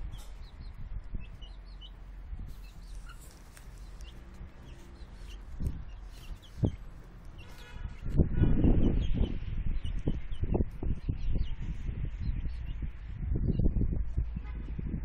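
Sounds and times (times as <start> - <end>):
chicks cheeping: 0.0 - 14.1.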